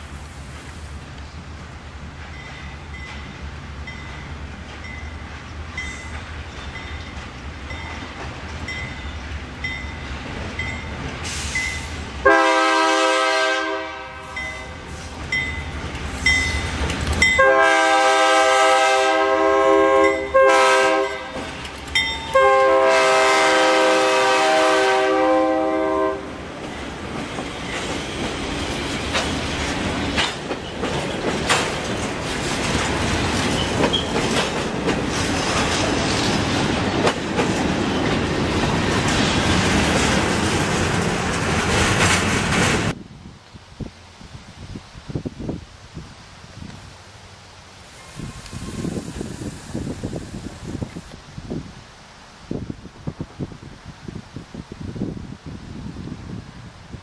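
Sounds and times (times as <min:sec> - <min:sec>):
train wheels clicking over rail joints: 0:00.4 - 0:12.2, 0:21.3 - 0:22.5, 0:26.4 - 0:43.0
train horn blasts: 0:12.2 - 0:15.0, 0:17.4 - 0:21.5, 0:22.3 - 0:26.4.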